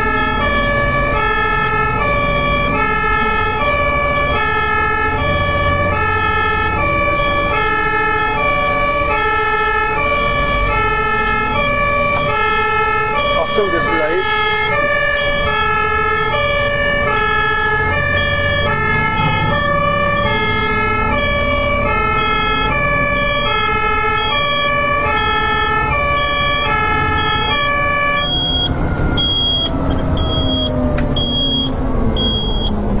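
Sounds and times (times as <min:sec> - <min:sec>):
road noise: 0:00.0 - 0:33.0
truck engine: 0:00.0 - 0:33.0
two-tone siren: 0:00.0 - 0:33.0
high beeps: 0:28.2 - 0:32.8.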